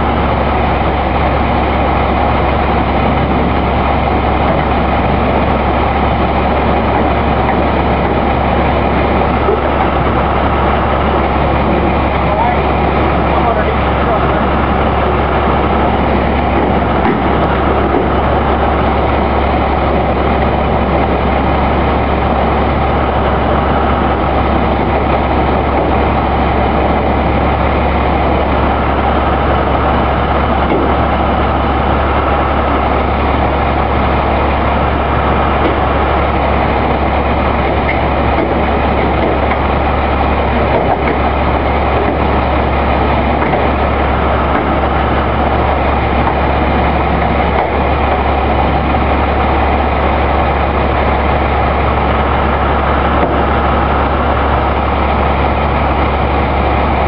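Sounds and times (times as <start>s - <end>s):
truck engine rumbling: 0.0s - 57.0s.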